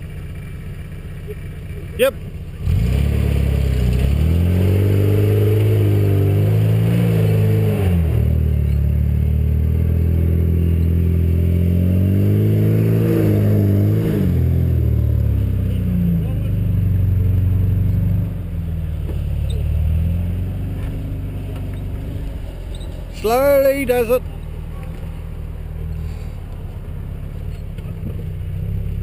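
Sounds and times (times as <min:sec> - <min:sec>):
pickup engine revving under load: 0:02.6 - 0:29.0.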